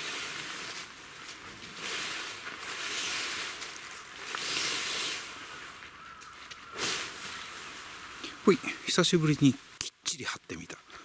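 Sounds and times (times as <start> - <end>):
tent fabric rustling and swishing: 0.0 - 5.8.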